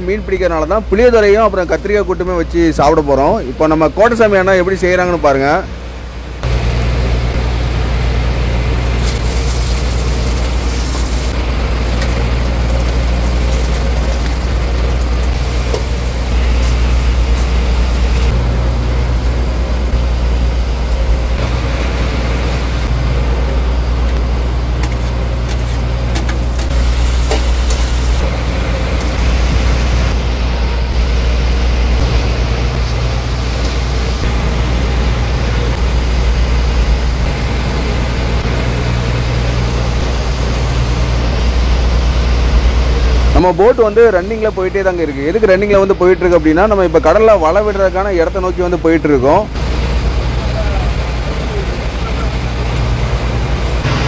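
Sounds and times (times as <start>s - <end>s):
boat engine droning: 0.0s - 54.0s.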